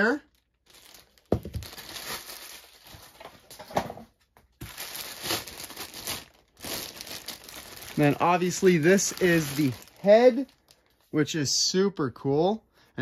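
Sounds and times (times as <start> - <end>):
plastic bag crinkling: 0.0 - 3.6, 4.6 - 11.1.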